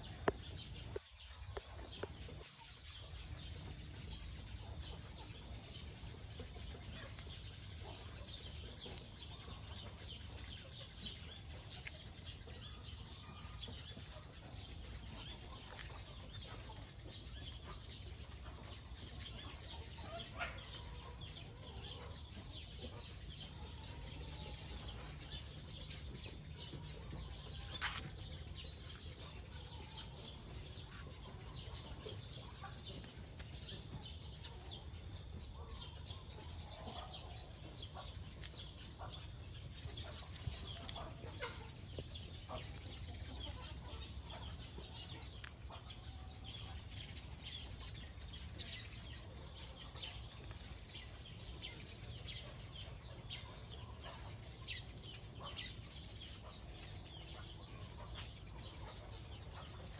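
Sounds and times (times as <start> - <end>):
small birds chirping: 0.0 - 59.9.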